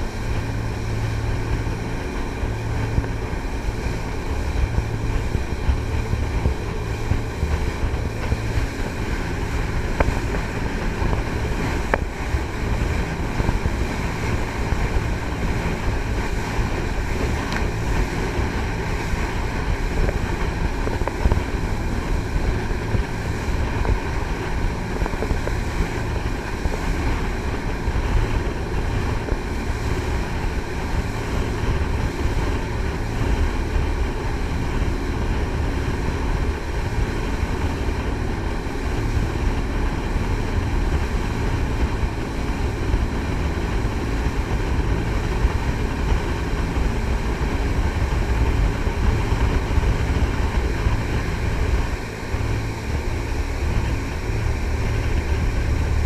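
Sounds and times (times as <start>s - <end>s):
boat engine drone: 0.0s - 56.0s
rushing water: 0.0s - 56.0s
wind on microphone: 0.0s - 56.0s.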